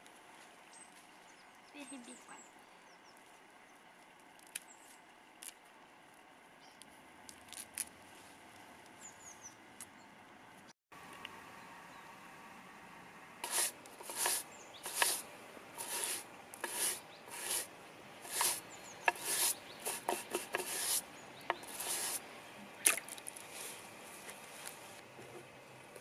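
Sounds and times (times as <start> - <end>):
bristle brush scrubbing roots: 13.4 - 25.0.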